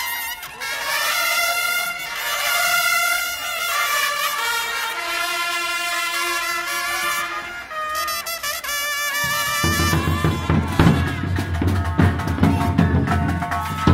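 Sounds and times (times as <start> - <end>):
brass instruments playing: 0.0 - 13.9
bass drums beating: 9.3 - 13.9.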